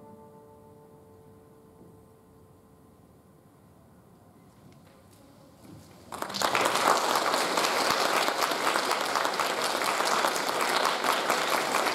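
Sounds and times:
audience applause: 6.1s - 11.9s.

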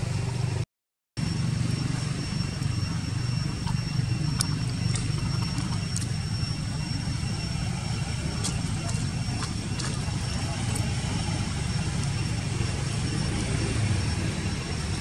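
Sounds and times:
low engine hum: 0.0s - 0.6s, 1.2s - 15.0s
thin steady high tone: 1.2s - 15.0s.

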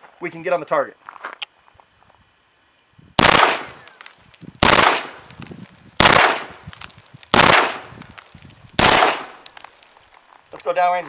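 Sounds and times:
pistol firing bursts: 3.2s - 5.3s, 6.0s - 6.6s, 7.3s - 8.0s, 8.8s - 9.6s.

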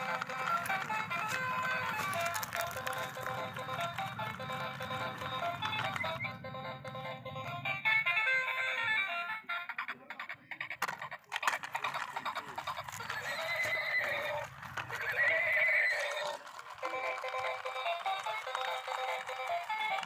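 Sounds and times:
recorded horse whinny: 13.2s - 16.4s.

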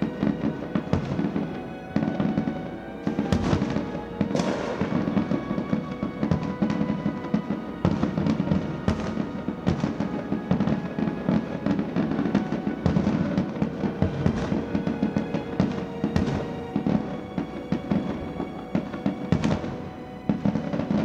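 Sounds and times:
fireworks bangs and crackles: 0.0s - 21.0s
music playing: 0.0s - 21.0s.

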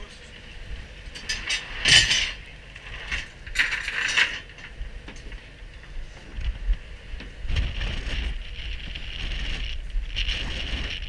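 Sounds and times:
wind buffeting microphone: 0.0s - 11.0s
metal gear clinking and rattling: 1.1s - 5.4s.

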